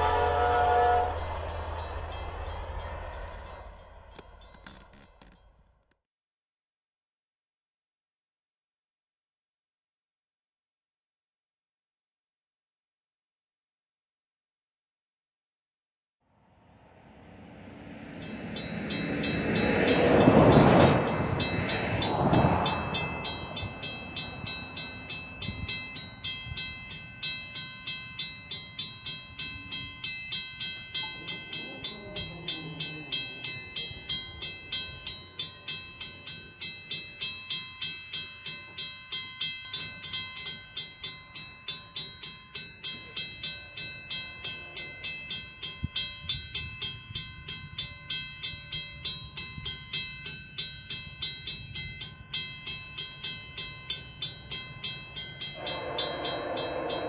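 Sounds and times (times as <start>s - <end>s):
road vehicle passing: 0.0s - 4.9s, 16.5s - 25.4s, 55.6s - 57.0s
level crossing warning bell: 0.0s - 5.6s, 17.6s - 57.0s.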